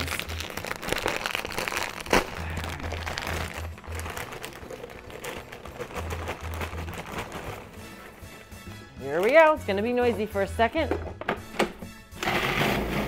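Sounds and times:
pork rinds crackling into bowl: 0.0s - 7.1s
plastic bag crinkling: 0.0s - 8.4s.

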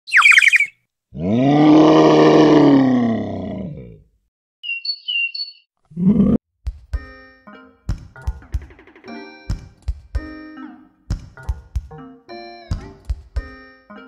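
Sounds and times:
high bird-like tweets: 0.1s - 0.8s, 4.6s - 5.7s
high falling chirps: 0.1s - 0.8s, 4.6s - 5.7s
long low animal call: 1.2s - 4.0s.

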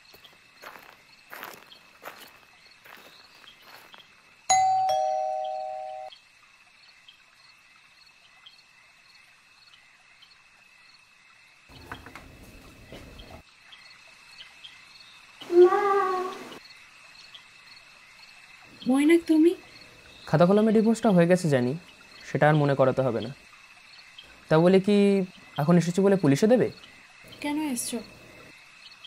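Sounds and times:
crickets chirring: 0.0s - 29.0s
two-note doorbell ding-dong: 4.5s - 6.1s.

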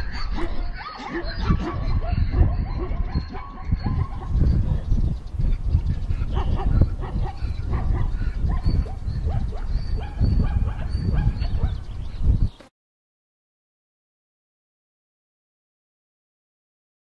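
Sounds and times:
animal yelping: 0.0s - 4.6s, 5.8s - 11.8s.

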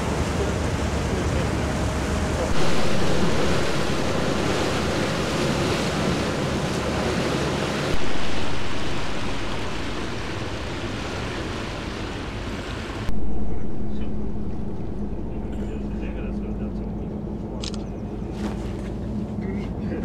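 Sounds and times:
rushing water: 0.0s - 13.1s
wind buffeting microphone: 0.0s - 20.0s.

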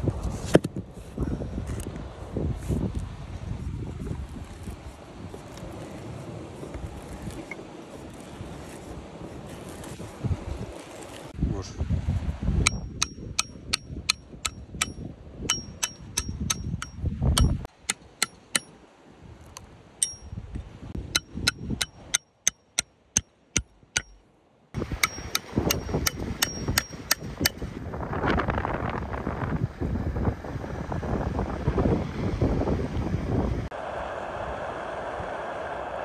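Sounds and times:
wind buffeting microphone: 0.0s - 17.7s, 20.2s - 22.1s, 24.8s - 36.0s
hammer striking metal tool: 12.7s - 18.8s, 20.0s - 20.4s, 21.1s - 24.2s, 24.8s - 27.6s.

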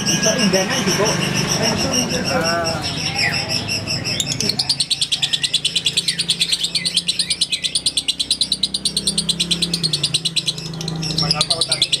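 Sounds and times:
lovebird chattering trill: 0.0s - 12.0s.

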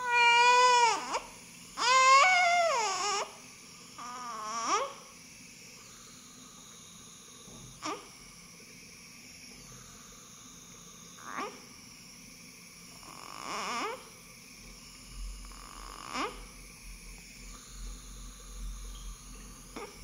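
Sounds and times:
baby whimpering: 0.0s - 3.4s, 4.0s - 5.0s, 16.0s - 16.5s.

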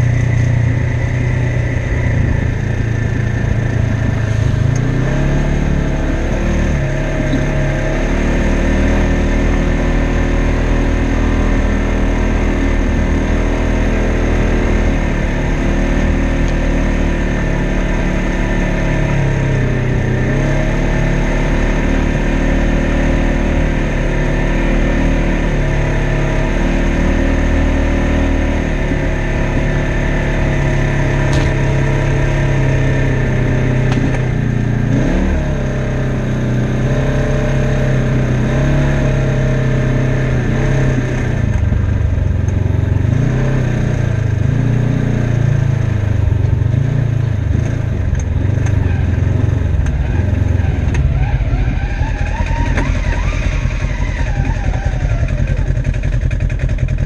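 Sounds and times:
off-road vehicle engine revving: 0.0s - 57.0s.

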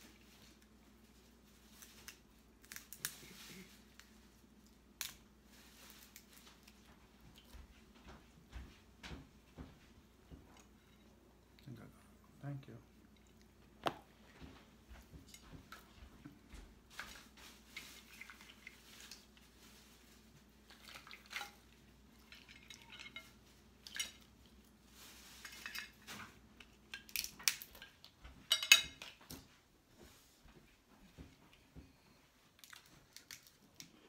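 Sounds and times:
dishes and cutlery clinking: 22.2s - 24.3s, 27.8s - 29.4s.

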